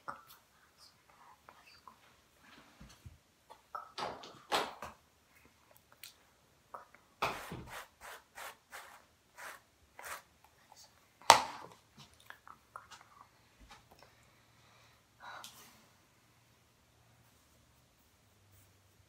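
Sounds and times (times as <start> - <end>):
hairbrush brushing long hair: 7.3 - 10.3.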